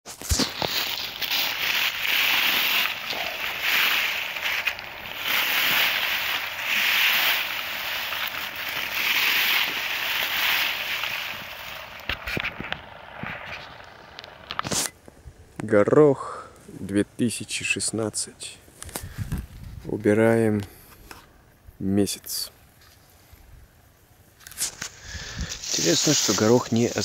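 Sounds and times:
dry pea stalks rustling: 0:00.1 - 0:15.2, 0:24.4 - 0:27.0
light crackles of stalks: 0:00.1 - 0:27.0.

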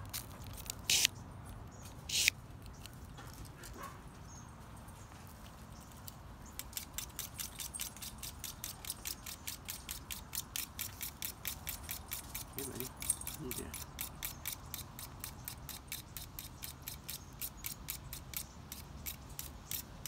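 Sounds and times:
knife scraping through sharpener: 0:00.6 - 0:01.1, 0:02.1 - 0:02.4, 0:06.6 - 0:19.9
light jingling clicks: 0:10.6 - 0:14.8.

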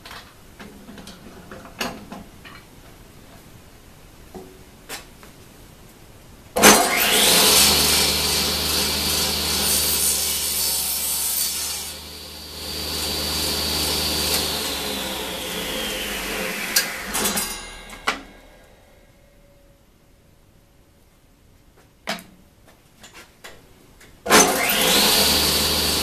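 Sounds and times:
saw cutting wooden board: 0:06.6 - 0:18.8, 0:24.3 - 0:26.0
table saw whine: 0:06.6 - 0:19.1, 0:24.3 - 0:26.0.

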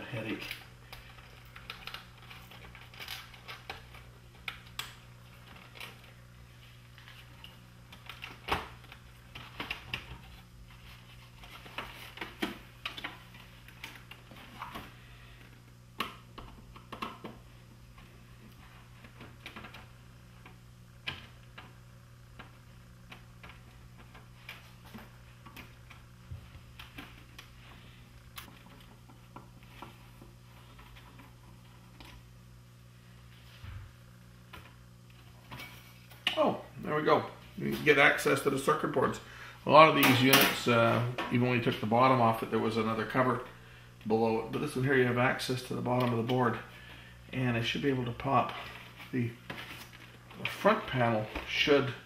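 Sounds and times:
screwdriver and hands clattering: 0:00.0 - 0:06.1
steady low hum: 0:00.0 - 0:52.0.

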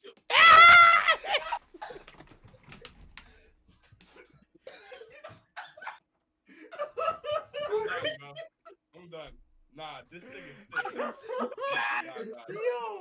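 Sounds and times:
computer keyboard clicking: 0:02.0 - 0:03.3.

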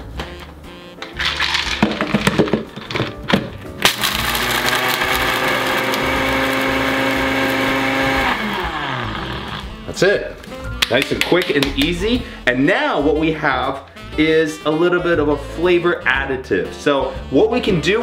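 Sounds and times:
blender motor grinding: 0:01.2 - 0:01.8, 0:03.8 - 0:09.8
hard candy cracking in cup: 0:03.8 - 0:06.0.

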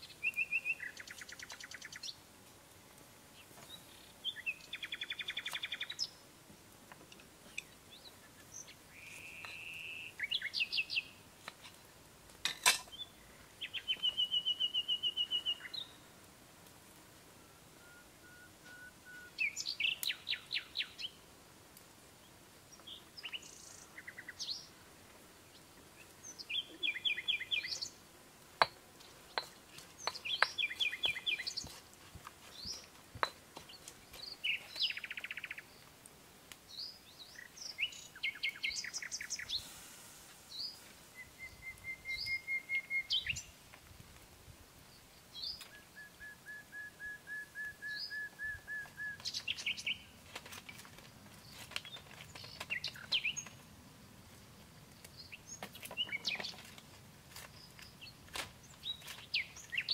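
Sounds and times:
birds chirping and trilling: 0:00.0 - 0:02.2, 0:03.4 - 0:06.2, 0:07.5 - 0:11.2, 0:12.7 - 0:16.0, 0:19.1 - 0:21.2, 0:25.5 - 0:28.0, 0:29.2 - 0:31.8, 0:32.5 - 0:35.8, 0:36.7 - 0:39.6, 0:40.5 - 0:43.5, 0:47.9 - 0:50.2, 0:51.4 - 0:53.6, 0:55.1 - 0:56.7, 0:57.5 - 0:59.9.

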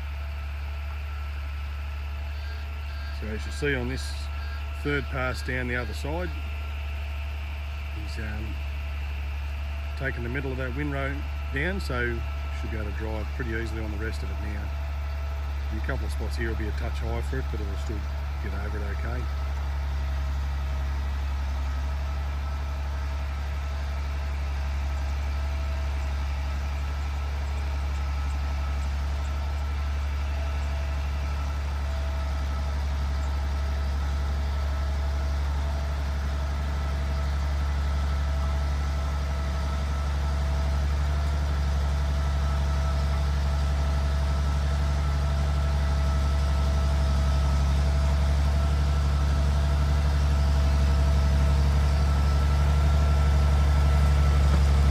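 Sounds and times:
diesel engine running: 0:00.0 - 0:54.9.

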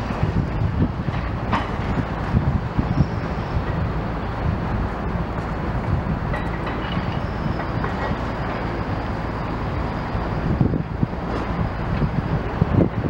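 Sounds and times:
mechanical rumble: 0:00.0 - 0:13.0
wind buffeting microphone: 0:00.0 - 0:13.0.

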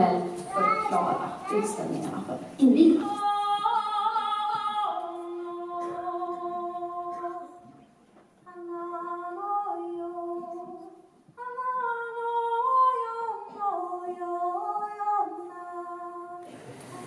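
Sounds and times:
woman singing through loudspeaker: 0:00.0 - 0:07.7, 0:08.4 - 0:17.0.

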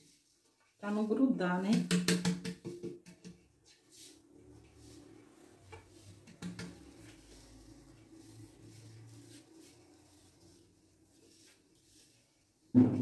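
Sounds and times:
kitchenware knocking and clattering: 0:01.8 - 0:03.4, 0:12.8 - 0:13.0.

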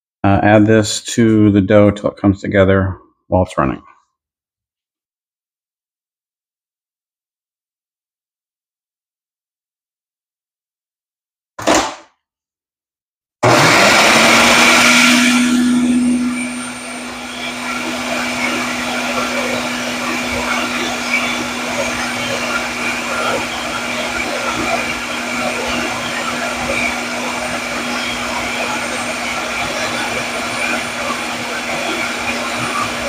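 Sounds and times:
blender motor humming: 0:13.4 - 0:33.0.

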